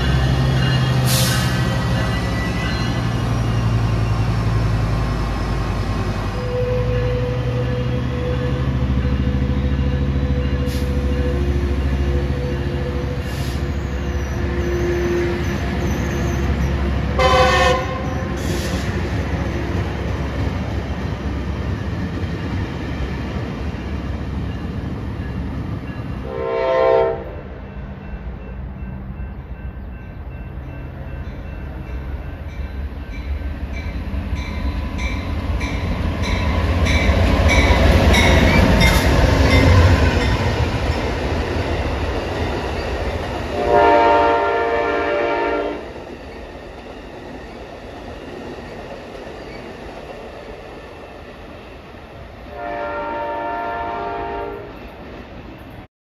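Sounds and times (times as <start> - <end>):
passenger train rumbling: 0.0 - 55.9
locomotive horn blasts: 6.0 - 9.3, 17.0 - 18.8, 26.2 - 27.4, 43.5 - 45.9, 52.5 - 54.7.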